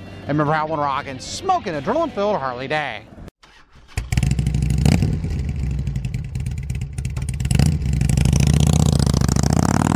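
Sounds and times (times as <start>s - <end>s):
motorcycle engine revving: 3.5s - 9.9s.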